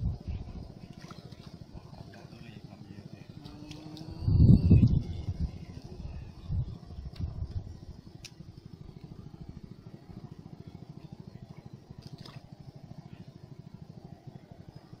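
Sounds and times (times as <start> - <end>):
small engine throbbing: 0.0 - 15.0
faint clicks: 8.2 - 8.4.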